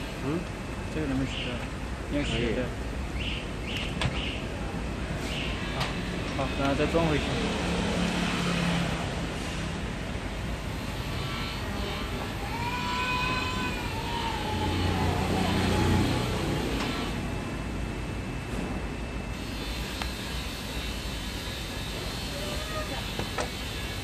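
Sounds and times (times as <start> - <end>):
background traffic noise: 0.0 - 24.0
engine passing by: 5.6 - 10.0, 13.4 - 17.6.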